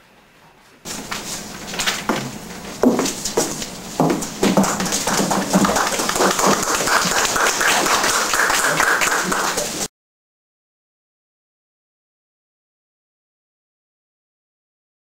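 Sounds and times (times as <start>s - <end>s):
audience applauding: 0.9s - 9.9s.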